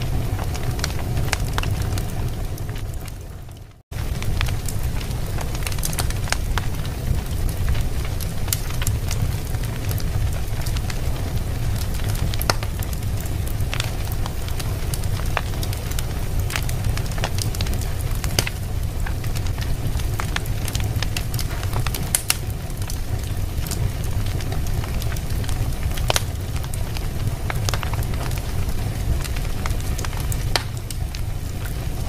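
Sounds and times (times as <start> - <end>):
low rumble: 0.0 - 32.0
wood fire crackling and popping: 0.0 - 32.0.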